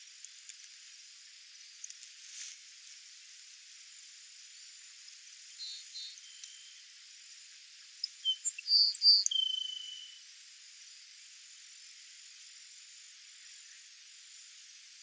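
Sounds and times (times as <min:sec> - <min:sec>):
steady high hiss: 0:00.0 - 0:15.0
sparrow singing: 0:08.0 - 0:10.2.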